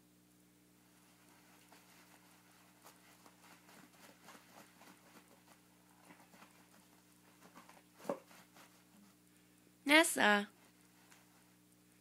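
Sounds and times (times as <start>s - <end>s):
cat scratching paper: 0.9s - 9.2s.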